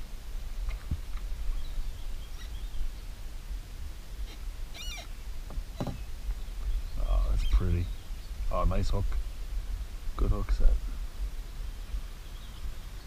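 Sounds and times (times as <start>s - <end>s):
faint bird calls: 0.6s - 3.2s, 4.2s - 9.5s.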